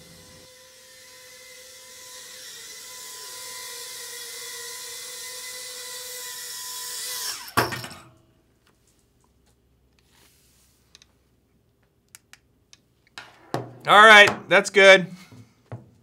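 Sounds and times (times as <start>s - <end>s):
drone motors whining: 0.0s - 7.6s.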